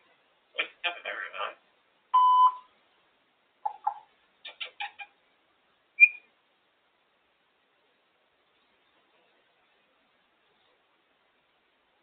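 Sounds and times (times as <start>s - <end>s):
parrot chirps and clicks: 3.6s - 5.1s, 6.0s - 6.3s
parrot whistling: 6.0s - 6.3s.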